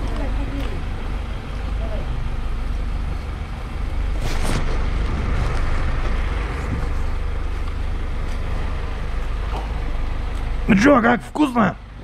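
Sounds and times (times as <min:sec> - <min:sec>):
vehicles passing and idling: 0:00.0 - 0:12.0
brief crackle: 0:04.1 - 0:06.2.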